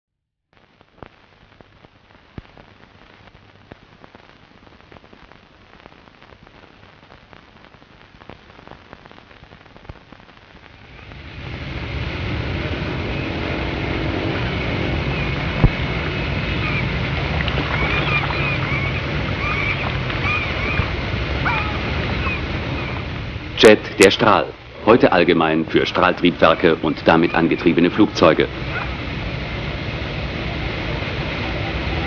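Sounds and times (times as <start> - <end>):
old film crackle and pops: 0.5 - 11.2, 15.5 - 16.1
faint hiss: 0.6 - 32.0
loud rushing roar: 10.8 - 32.0.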